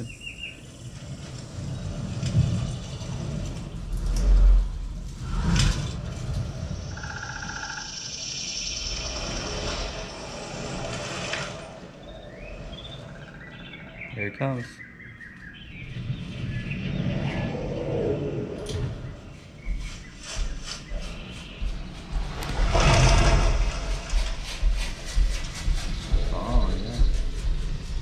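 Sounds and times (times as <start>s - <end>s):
deep rumbling sound effects: 15.6s - 28.0s.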